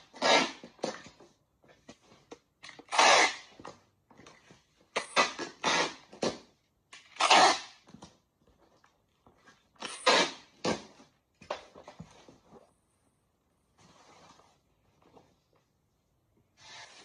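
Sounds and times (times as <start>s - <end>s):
packing tape pulled off roll: 2.7s - 3.5s, 7.0s - 7.8s.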